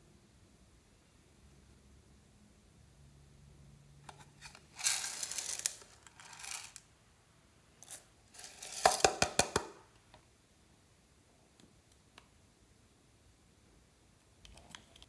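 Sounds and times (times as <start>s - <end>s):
small clay pieces rattling: 4.6s - 6.8s, 7.8s - 9.1s.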